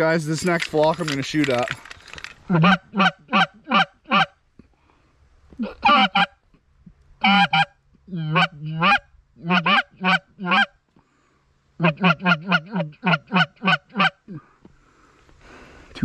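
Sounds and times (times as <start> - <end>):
goose honking: 2.5 - 4.4, 5.6 - 6.4, 7.2 - 10.8, 11.8 - 14.4.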